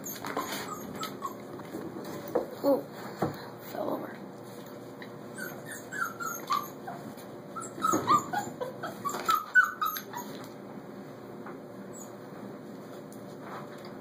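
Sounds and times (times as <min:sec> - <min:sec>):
puppies whimpering and yipping: 0:00.0 - 0:01.6, 0:05.0 - 0:10.5.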